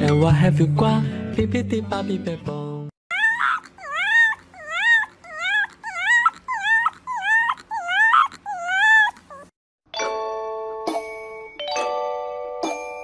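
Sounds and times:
puppy whining and howling: 3.1 - 9.6.

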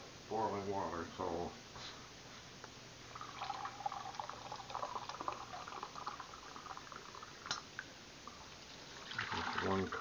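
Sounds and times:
water pouring into glass cup: 3.1 - 7.6, 8.9 - 10.0.

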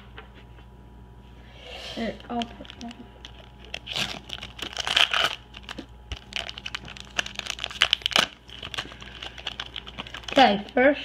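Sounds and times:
foil wrapper crinkling: 2.1 - 10.9.

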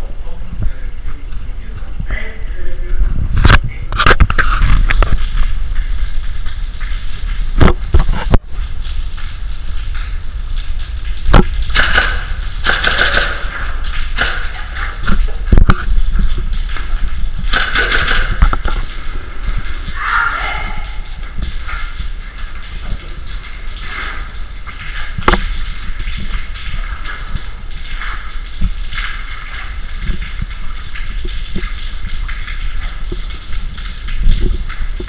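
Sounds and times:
sharp knocks or clicks: 11.3 - 15.8.

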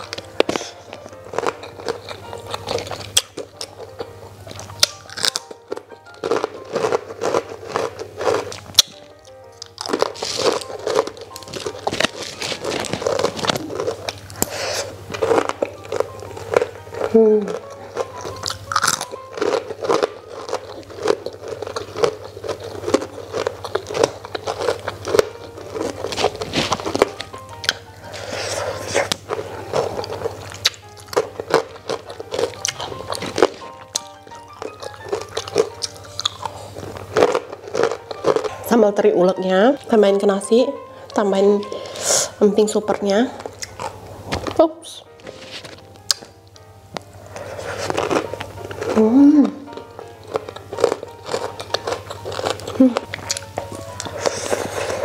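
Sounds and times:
crackers crunching as chewed: 0.0 - 38.7, 43.3 - 55.0
ragtime music: 15.1 - 55.0.

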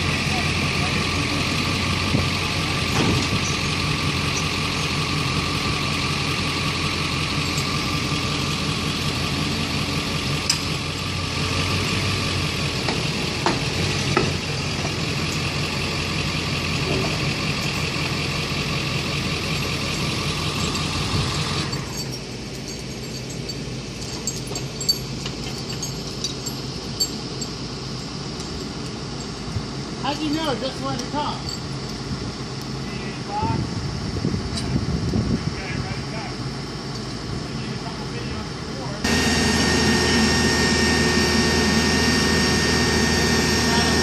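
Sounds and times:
diesel engine idling: 0.0 - 44.0
sharp metal clinks: 21.6 - 29.5.

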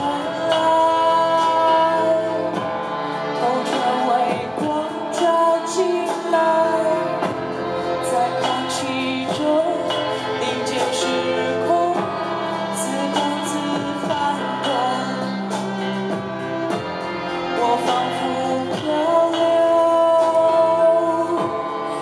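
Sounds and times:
cello and violin playing: 0.0 - 22.0
woman singing: 8.0 - 15.8, 17.6 - 22.0.

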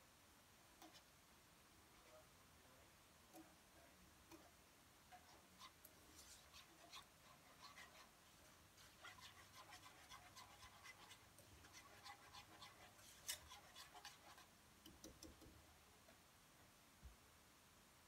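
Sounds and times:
whisk scraping in a pan: 0.8 - 1.1, 4.3 - 15.8.

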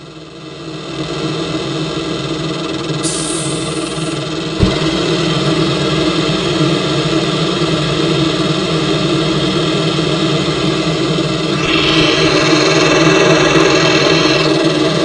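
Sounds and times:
car wash machinery drone: 0.1 - 15.0
high hiss: 3.0 - 4.3.

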